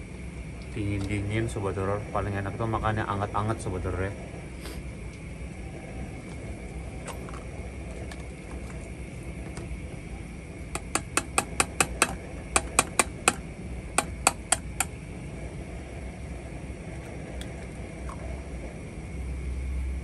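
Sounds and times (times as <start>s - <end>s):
rapid sharp clicks: 14.0s - 15.0s.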